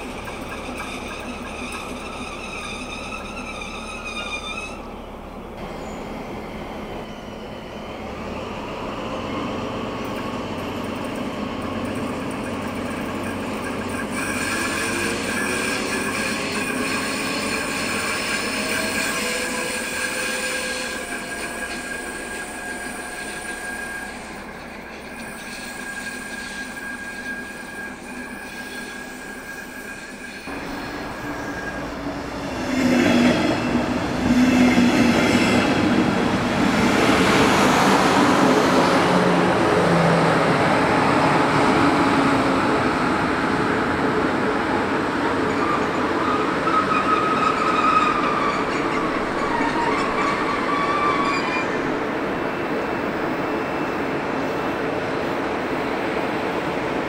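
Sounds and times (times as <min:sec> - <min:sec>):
high-pitched wheel squeal: 0:00.0 - 0:05.1, 0:12.0 - 0:32.1, 0:45.5 - 0:52.0.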